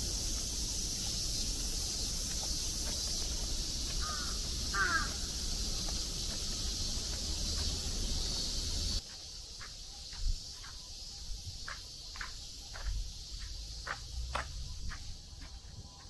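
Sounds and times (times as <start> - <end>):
high-pitched outdoor hiss: 0.0 - 16.0
crow cawing: 4.0 - 5.4.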